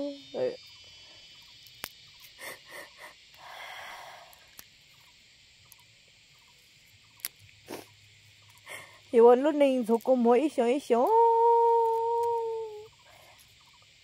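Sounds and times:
woman breathing: 0:02.4 - 0:04.6, 0:08.6 - 0:09.1
short sniffs: 0:07.6 - 0:07.9.

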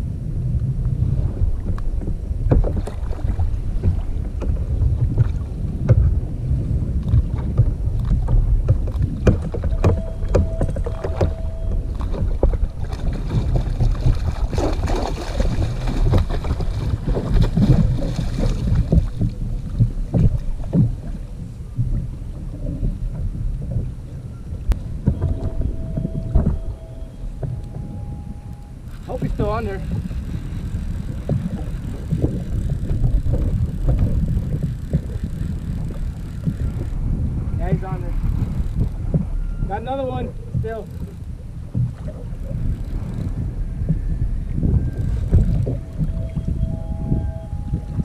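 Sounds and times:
wind buffeting microphone: 0:00.0 - 0:48.0
water slapping hull: 0:00.8 - 0:48.0
fishing gear knocks and clicks: 0:07.0 - 0:21.1, 0:28.5 - 0:37.0, 0:44.8 - 0:46.7
fish splashing in water: 0:09.4 - 0:21.0.

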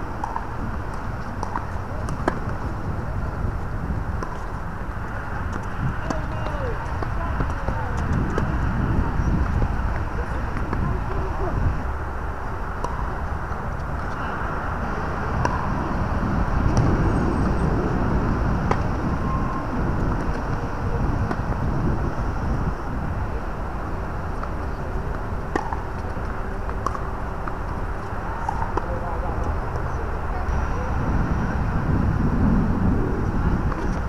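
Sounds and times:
low outdoor rumble: 0:00.0 - 0:34.0
tennis balls struck by rackets: 0:00.1 - 0:14.2, 0:14.8 - 0:15.8, 0:16.5 - 0:19.2, 0:19.9 - 0:22.0, 0:23.0 - 0:29.9.

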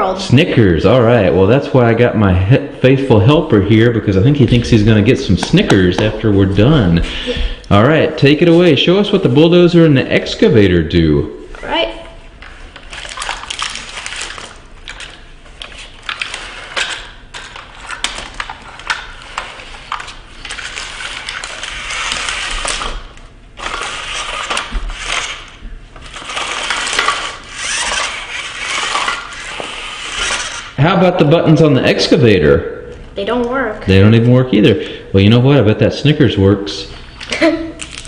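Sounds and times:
candy wrappers crinkling: 0:12.8 - 0:30.7, 0:37.2 - 0:38.0.

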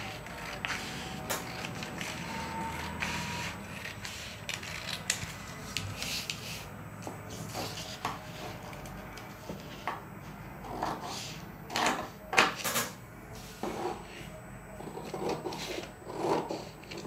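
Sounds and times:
scissors snipping paper: 0:03.4 - 0:06.4.

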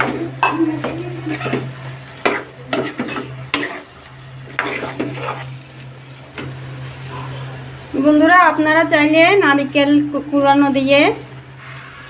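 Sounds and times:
curry sizzling: 0:00.0 - 0:12.0
steady low hum: 0:00.0 - 0:12.0
spoon scraping a pan: 0:01.2 - 0:05.6.

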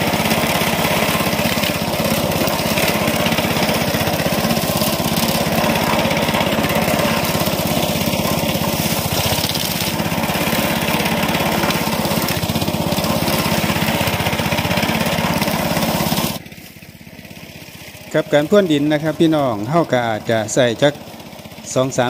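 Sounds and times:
blade scraping soil: 0:00.0 - 0:16.9
small petrol engine running: 0:00.0 - 0:22.0.

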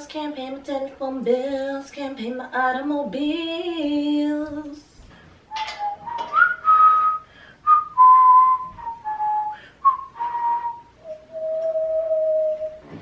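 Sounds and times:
person whistling a tune: 0:05.5 - 0:13.0.

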